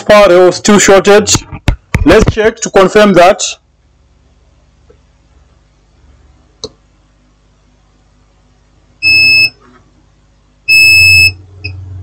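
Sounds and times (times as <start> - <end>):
multimeter continuity beeps: 9.0 - 9.6, 10.7 - 11.8.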